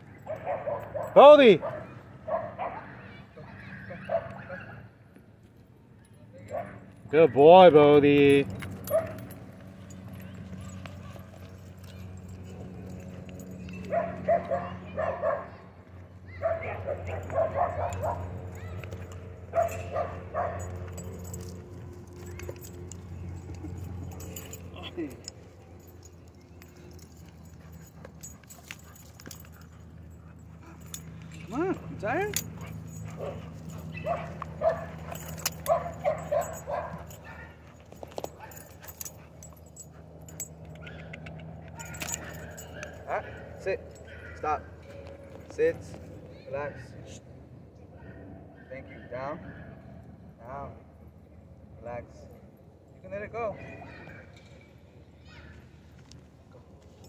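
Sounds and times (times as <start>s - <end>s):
dog barking: 0.2s - 3.0s, 3.9s - 4.8s, 13.8s - 15.6s, 16.3s - 18.4s, 19.5s - 20.8s, 32.6s - 37.6s
light clicks and clinks: 8.2s - 14.6s, 17.0s - 46.4s, 52.9s - 55.0s.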